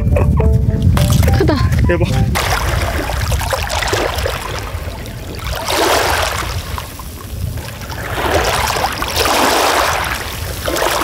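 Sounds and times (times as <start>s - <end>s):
steady low rumble: 0.0s - 11.0s
water sloshing and splashing: 0.9s - 11.0s.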